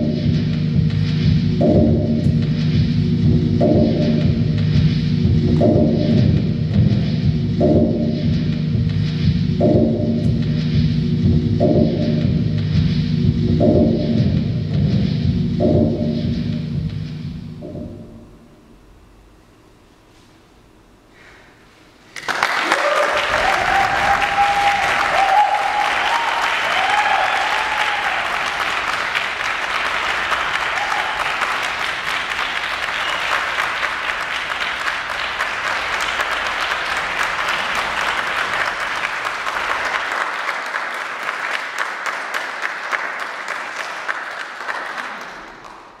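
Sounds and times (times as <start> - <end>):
audience clapping: 22.1 - 46.0
people whooping: 22.5 - 34.1.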